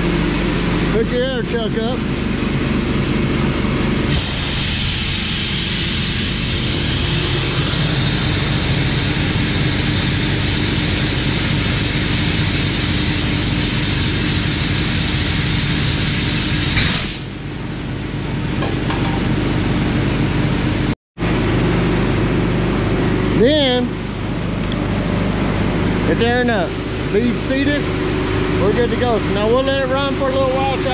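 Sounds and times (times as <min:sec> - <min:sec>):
air compressor humming: 0:00.0 - 0:30.9
compressed air hissing: 0:04.1 - 0:17.3.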